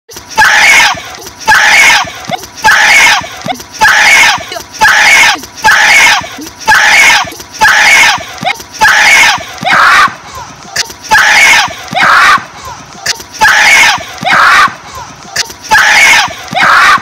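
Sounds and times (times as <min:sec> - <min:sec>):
boy screaming high-pitched yells: 0:00.3 - 0:17.0.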